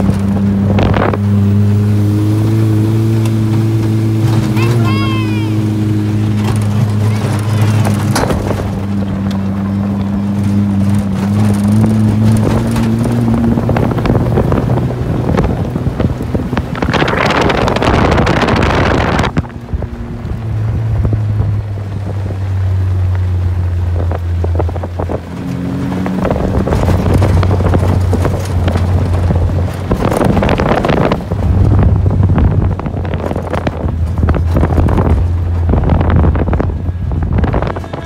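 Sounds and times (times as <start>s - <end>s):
wind buffeting microphone: 0.0s - 38.0s
loud rush of noise: 0.8s - 9.0s, 13.3s - 20.0s, 29.8s - 38.0s.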